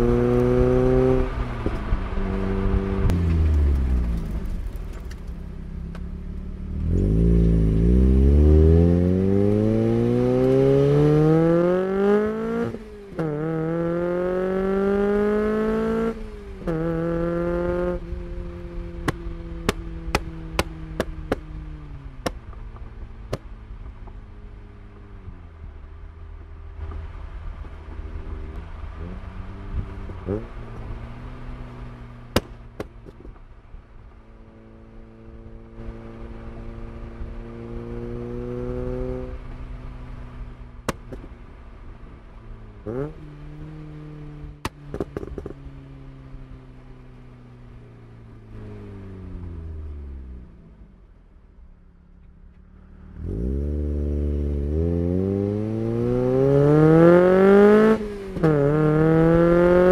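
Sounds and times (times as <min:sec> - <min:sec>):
car engine revving: 0:00.0 - 0:23.5, 0:34.5 - 0:42.2, 0:52.6 - 0:59.9
exhaust pops and bangs: 0:19.0 - 0:21.5, 0:32.3 - 0:33.6, 0:40.8 - 0:41.4, 0:44.6 - 0:45.6.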